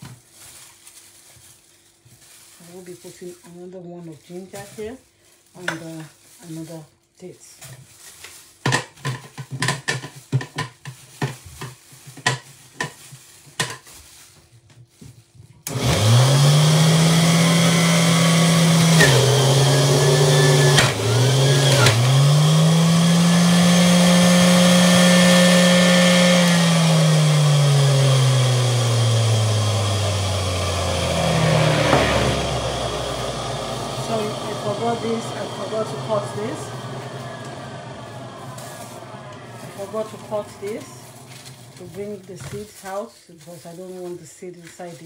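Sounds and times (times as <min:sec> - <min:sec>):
juicer motor whining: 0:15.6 - 0:42.3.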